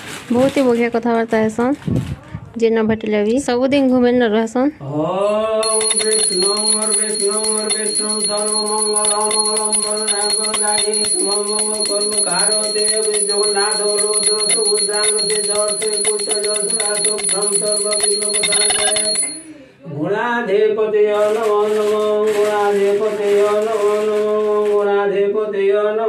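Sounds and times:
hand bell ringing rapidly: 5.6s - 19.4s.

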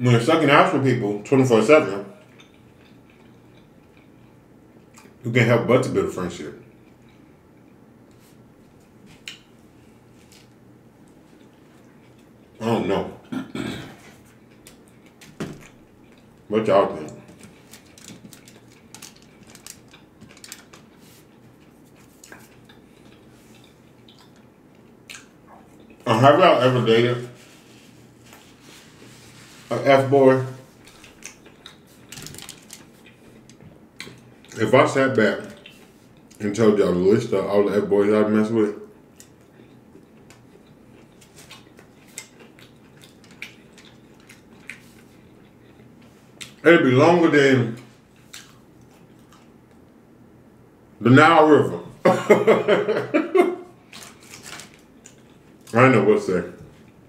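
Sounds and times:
close-miked chewing: 2.2s - 5.2s, 14.1s - 26.1s, 30.7s - 34.6s, 38.8s - 46.6s, 48.0s - 50.0s, 53.8s - 55.8s
fingers handling food on foil: 17.3s - 22.6s.

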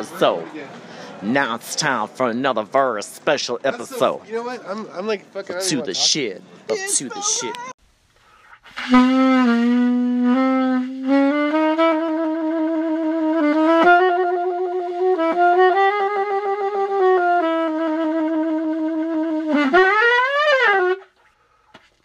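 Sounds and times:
solo saxophone playing: 8.8s - 21.1s.

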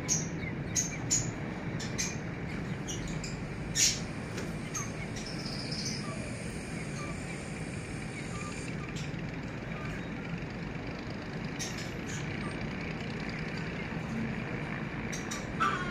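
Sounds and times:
birds chirping faintly: 0.0s - 15.9s
steady background noise: 0.0s - 15.9s.

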